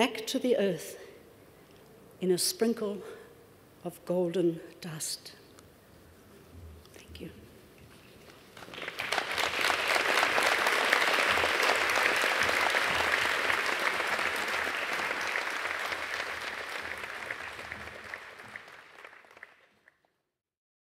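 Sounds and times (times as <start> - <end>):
audience applauding: 8.2 - 20.1.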